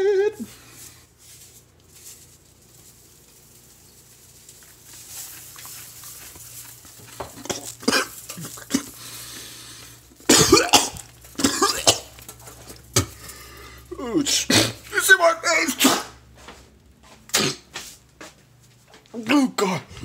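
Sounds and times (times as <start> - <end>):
man coughing and sputtering: 7.6 - 9.0, 10.2 - 12.2, 14.3 - 14.8, 17.3 - 17.7.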